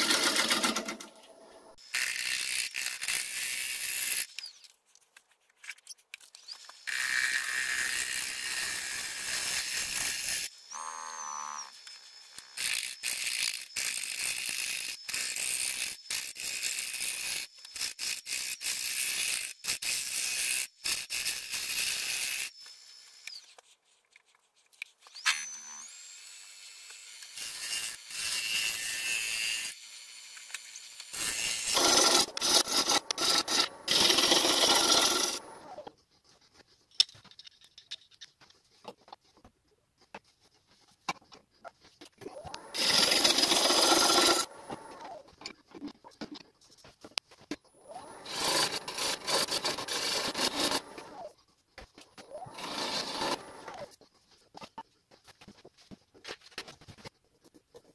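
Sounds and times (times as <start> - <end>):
lathe tool cutting wood: 31.2 - 35.8, 42.4 - 45.2, 47.9 - 51.3, 52.3 - 53.9.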